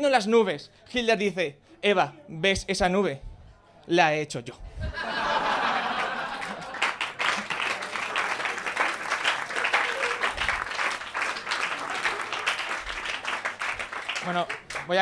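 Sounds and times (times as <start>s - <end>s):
audience applauding: 5.3s - 15.0s.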